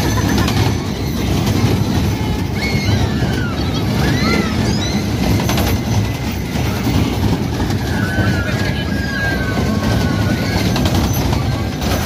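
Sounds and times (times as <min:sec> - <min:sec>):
high squeals: 0:00.0 - 0:12.0
kiddie ride cars rumbling: 0:00.0 - 0:12.0.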